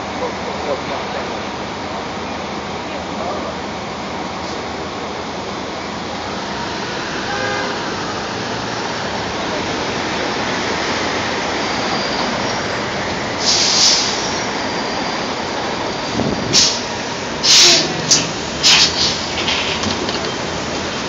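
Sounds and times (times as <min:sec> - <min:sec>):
city traffic noise: 0:00.0 - 0:21.0
diesel bus pulling up: 0:00.0 - 0:21.0
air brake hiss: 0:13.4 - 0:14.5, 0:16.5 - 0:19.7.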